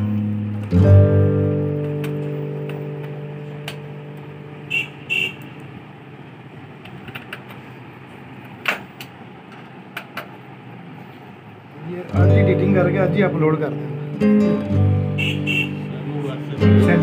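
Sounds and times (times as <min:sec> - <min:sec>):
acoustic guitar chord ringing: 0:00.0 - 0:04.7, 0:12.1 - 0:17.0
short high toots: 0:15.1 - 0:15.9.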